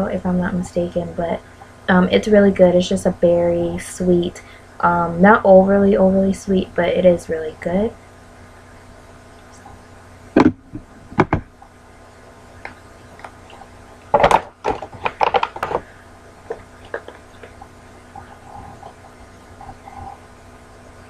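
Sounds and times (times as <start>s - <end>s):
plastic bottles clattering: 14.1s - 15.9s
plastic bottles clicking and knocking: 14.1s - 15.9s.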